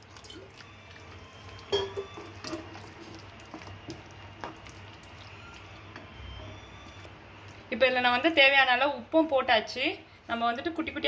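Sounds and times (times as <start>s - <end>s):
sauce sloshing: 0.0s - 5.9s.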